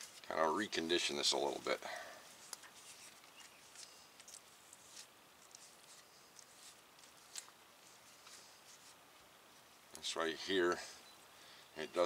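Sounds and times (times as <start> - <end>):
faint soft clicks and scuffs: 2.3 - 9.3.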